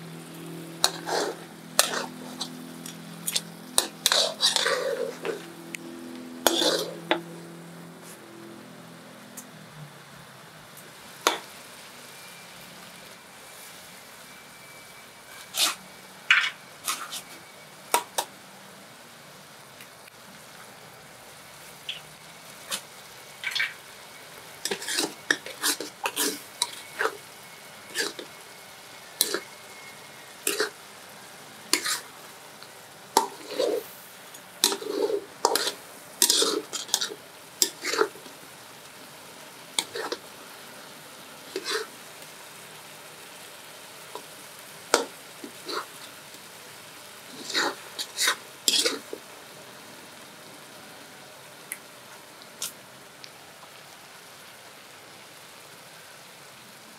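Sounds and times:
low sizzle: 0.0 - 56.9
metal ladle scraping a wok: 0.8 - 8.3, 15.3 - 17.4, 22.6 - 23.9, 24.6 - 27.2, 27.8 - 28.4, 29.1 - 30.8, 31.7 - 32.1, 33.2 - 38.3, 39.8 - 40.3, 41.5 - 41.9, 44.9 - 46.1, 47.3 - 49.2.

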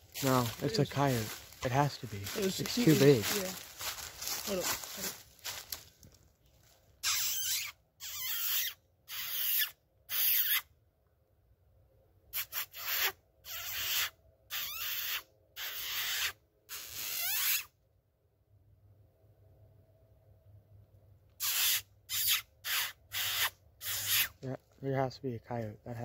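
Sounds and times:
person squeaking through lips: 7.0 - 10.6, 12.4 - 17.7, 21.4 - 24.4.

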